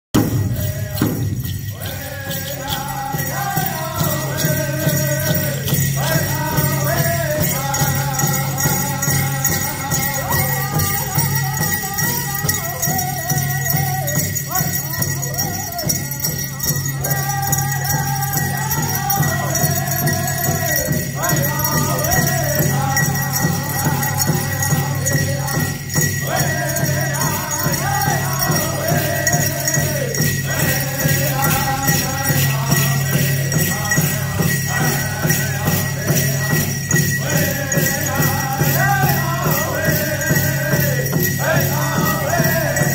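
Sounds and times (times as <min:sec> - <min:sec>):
metal cones jingling: 0:00.1 - 0:42.9
large drum steady beat: 0:00.2 - 0:42.9
men singing high phrases: 0:00.2 - 0:42.9.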